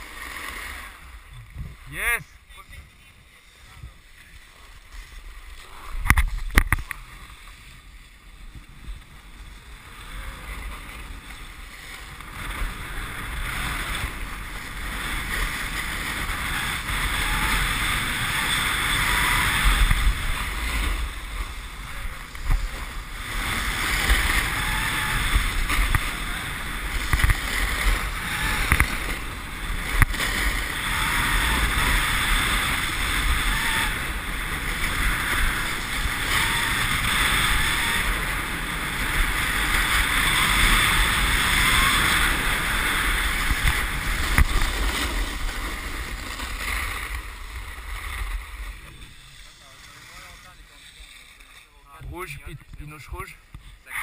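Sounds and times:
skis scraping on icy snow: 0:00.0 - 0:01.3, 0:02.5 - 0:54.0
wind rushing over microphone: 0:00.0 - 0:51.4.

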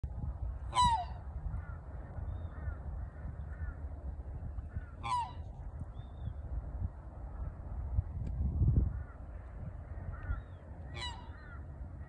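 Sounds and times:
low rumble: 0:00.0 - 0:12.0
swan calling: 0:00.6 - 0:03.8, 0:04.6 - 0:05.6, 0:10.1 - 0:12.0
distant bird calls: 0:00.6 - 0:06.5, 0:08.8 - 0:12.0.

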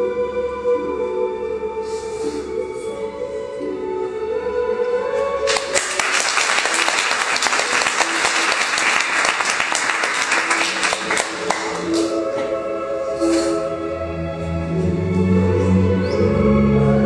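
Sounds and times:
faint performance music: 0:00.0 - 0:17.0
audience applauding: 0:05.5 - 0:12.2.

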